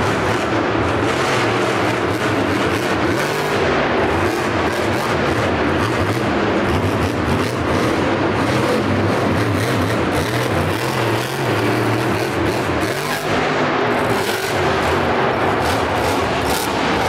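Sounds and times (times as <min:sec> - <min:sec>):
monster truck engine revving: 0:00.0 - 0:17.0.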